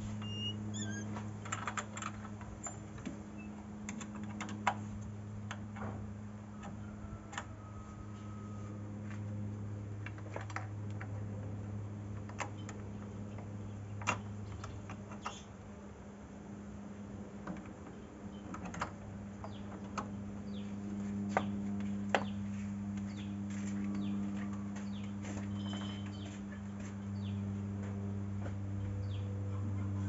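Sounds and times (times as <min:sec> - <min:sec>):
low hum: 0:00.0 - 0:30.0.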